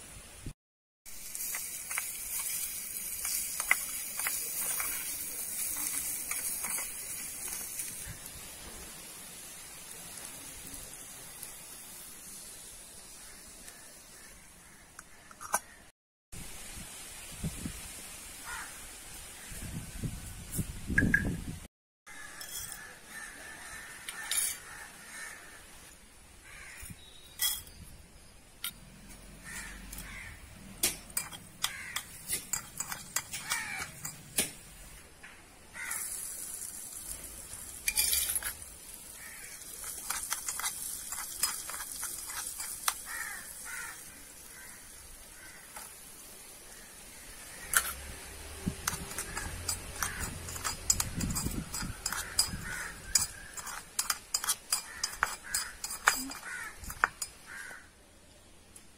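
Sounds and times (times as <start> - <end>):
oil frying sizzle: 1.1 - 14.5, 29.4 - 35.1, 35.7 - 57.5
metal spoon scraping a pan: 1.3 - 8.2, 22.1 - 25.4, 29.4 - 34.5, 37.5 - 46.0, 47.5 - 57.8.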